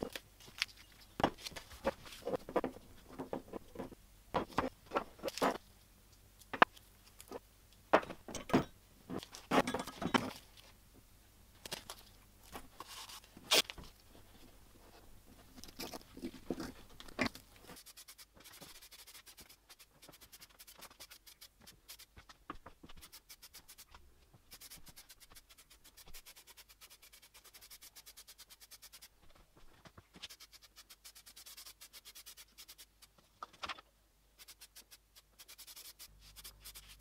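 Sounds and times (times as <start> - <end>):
masking tape pulled off and torn: 12.8 - 13.8.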